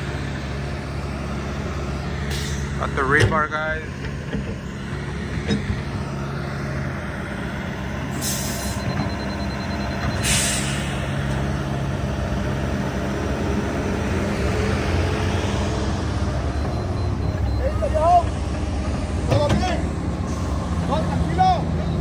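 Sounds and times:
excavator diesel engine running: 0.0s - 22.0s
short hisses: 10.2s - 11.0s.

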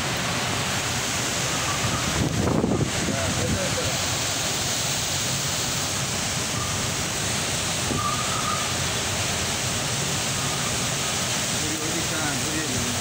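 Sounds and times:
storm wind roaring: 0.0s - 9.8s
heavy rain: 0.0s - 13.0s.

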